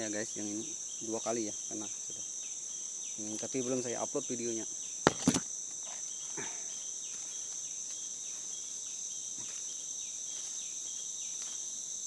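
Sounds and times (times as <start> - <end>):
insects chorus: 0.0 - 12.0
sharp knocks: 5.0 - 5.5.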